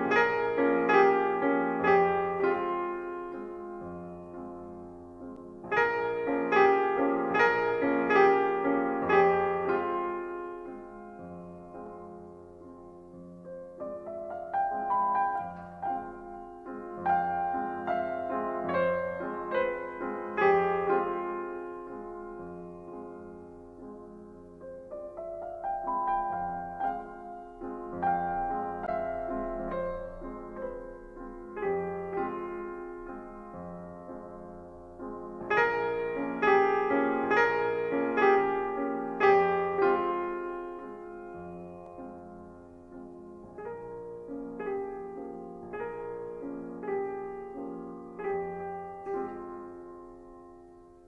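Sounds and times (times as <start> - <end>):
slow piano music: 0.0 - 51.0.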